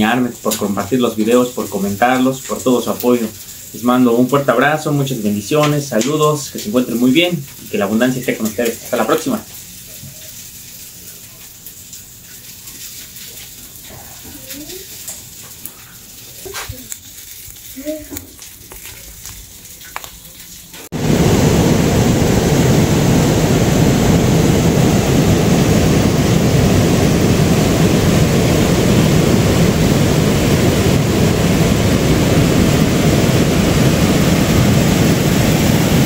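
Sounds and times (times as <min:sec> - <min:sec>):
loud steady rushing noise: 0:20.9 - 0:36.0.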